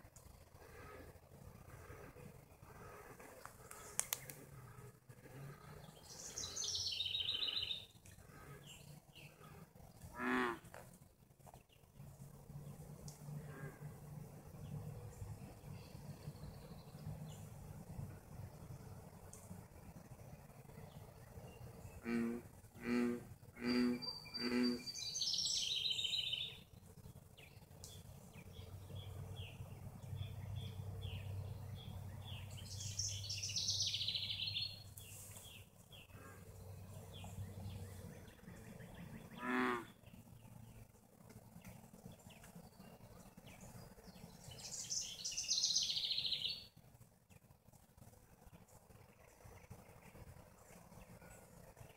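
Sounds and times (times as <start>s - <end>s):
bullfrog croaking: 22.0s - 24.8s.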